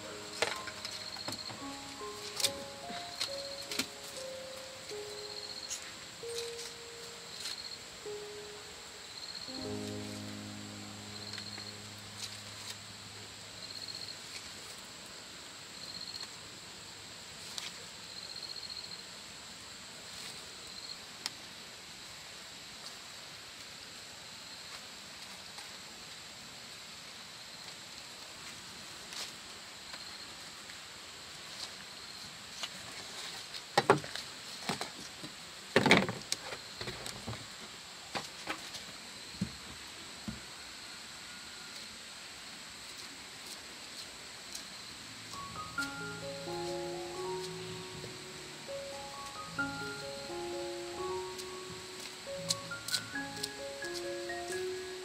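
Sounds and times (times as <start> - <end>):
insects trilling: 0.0 - 14.8.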